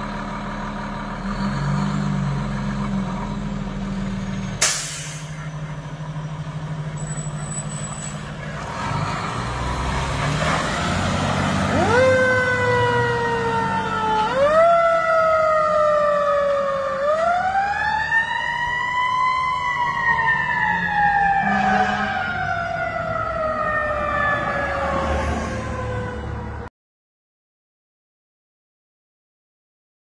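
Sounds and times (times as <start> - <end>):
fire engine siren wailing: 9.3 - 26.7.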